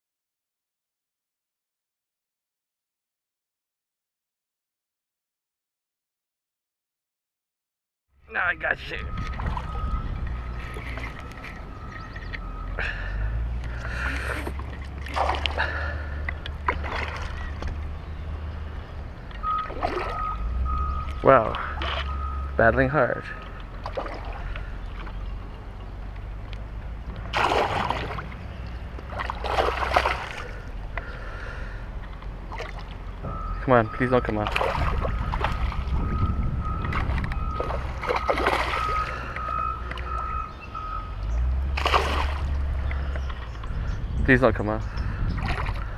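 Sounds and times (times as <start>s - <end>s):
low wind rumble: 8.2s - 22.6s, 23.2s - 45.9s.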